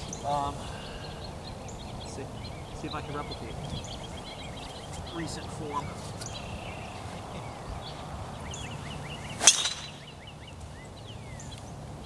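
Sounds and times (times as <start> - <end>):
small birds chirping: 0.0 - 12.0
golf club striking ball: 9.4 - 10.1.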